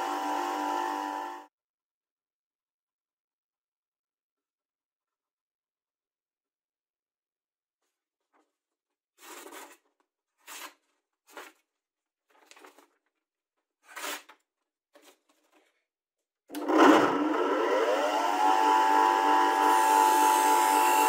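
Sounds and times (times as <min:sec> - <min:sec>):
bench grinder motor whine: 0:00.0 - 0:01.5, 0:16.5 - 0:21.0
knife slicing paper: 0:13.8 - 0:14.3.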